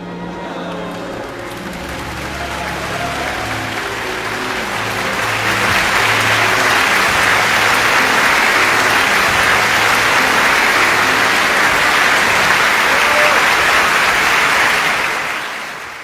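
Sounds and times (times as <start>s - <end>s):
low orchestral notes: 0.0s - 16.0s
audience applauding: 0.6s - 16.0s.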